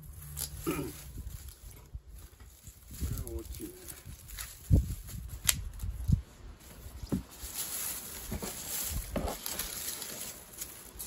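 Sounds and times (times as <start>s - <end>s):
dried onion stalks rustling: 0.0s - 11.0s
garden shears snipping: 0.2s - 1.7s, 4.1s - 5.9s.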